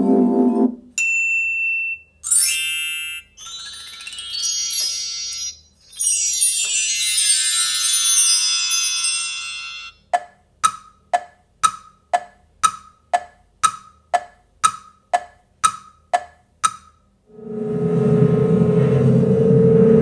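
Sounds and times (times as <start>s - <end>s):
wind chimes ringing: 1.0s - 10.0s
cartoon clock ticking: 2.2s - 5.6s, 9.4s - 17.2s
low steady hum: 17.3s - 20.0s.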